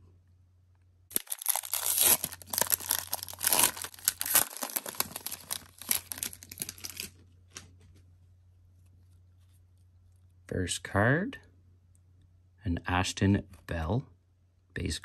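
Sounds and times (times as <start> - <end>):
wrapper being torn and crinkled: 1.1 - 7.2.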